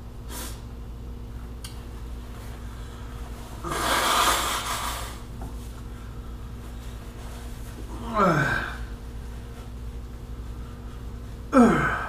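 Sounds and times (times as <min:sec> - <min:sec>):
person blowing nose: 0:00.3 - 0:00.6, 0:03.6 - 0:05.3.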